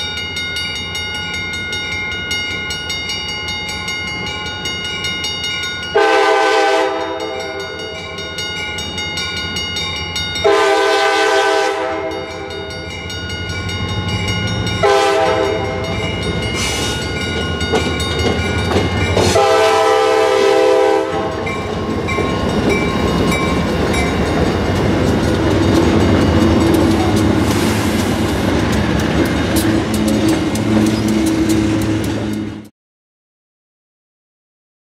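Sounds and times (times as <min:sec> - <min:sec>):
train wheels on rails: 0:00.0 - 0:32.7
train horn blasts: 0:06.0 - 0:07.6, 0:10.4 - 0:12.5, 0:14.8 - 0:16.0, 0:19.2 - 0:21.6.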